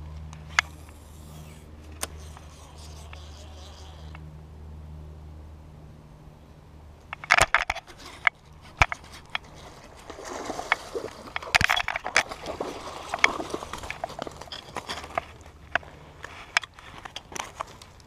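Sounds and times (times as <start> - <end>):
rod and reel clicks: 0.5 - 4.2, 7.2 - 18.0
fish splashing in water: 9.4 - 15.0.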